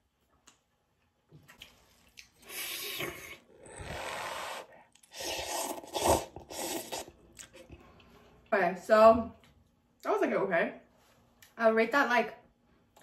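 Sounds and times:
noodles slurping: 0:01.6 - 0:07.8.

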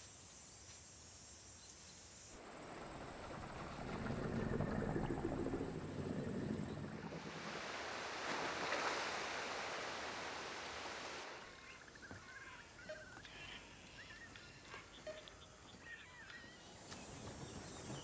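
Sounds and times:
low rumble: 0:02.4 - 0:07.5.

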